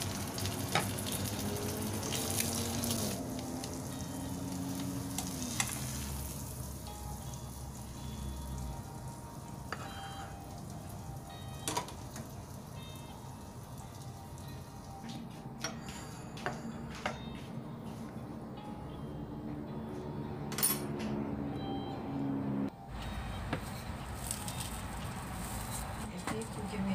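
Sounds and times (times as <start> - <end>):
eggs sizzling in a pan: 0.0 - 15.2
background music: 0.0 - 26.9.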